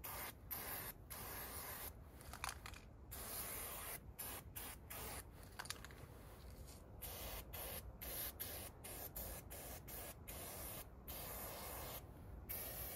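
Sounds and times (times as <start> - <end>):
spray-paint can hissing: 0.0 - 1.9, 3.1 - 5.2, 7.0 - 12.9.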